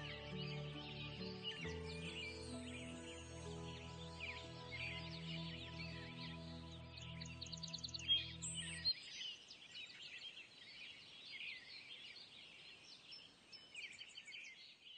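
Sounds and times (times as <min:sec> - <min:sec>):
background music: 0:00.0 - 0:08.9
birds chirping: 0:00.0 - 0:14.6.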